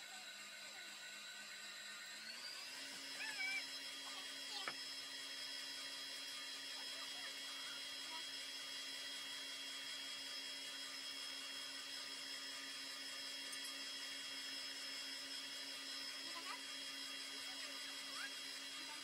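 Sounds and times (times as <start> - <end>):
constant high tone: 0.0 - 5.0
stand mixer motor hum: 0.0 - 19.0.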